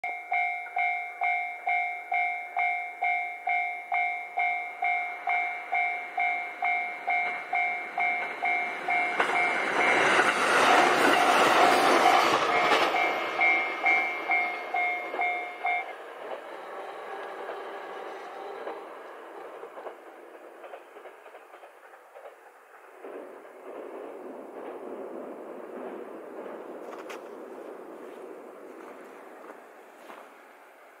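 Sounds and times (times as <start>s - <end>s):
level crossing bell ringing: 0.0s - 16.0s
train rumble: 0.1s - 31.0s.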